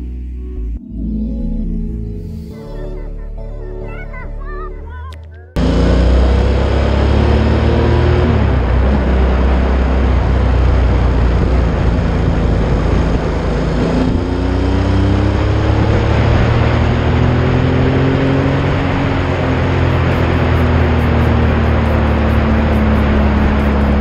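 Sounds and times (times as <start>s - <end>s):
motorcycle engine running: 5.6s - 24.0s
wind rushing over microphone: 7.4s - 24.0s.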